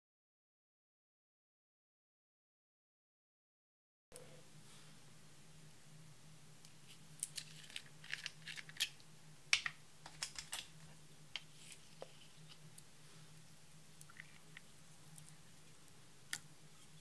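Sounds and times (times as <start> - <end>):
faint low hum: 4.1 - 17.0.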